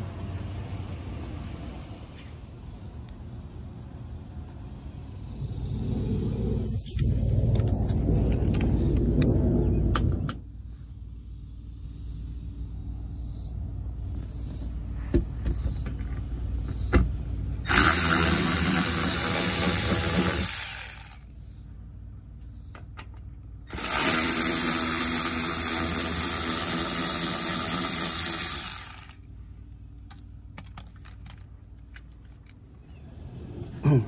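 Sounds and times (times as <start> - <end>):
electric ratchet running: 17.7 - 21.2, 23.7 - 29.2.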